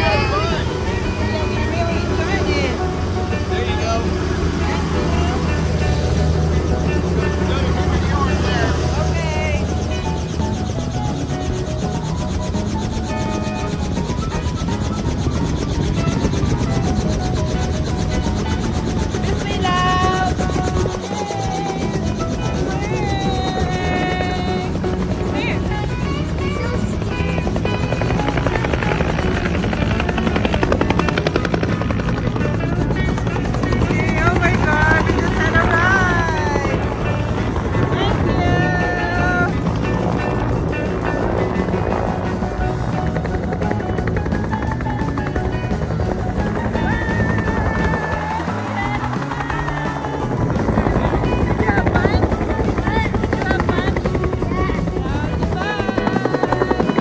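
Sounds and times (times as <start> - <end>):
helicopter engine noise: 0.0 - 57.0
helicopter rotor pulsing: 0.0 - 57.0
music playing: 0.0 - 57.0.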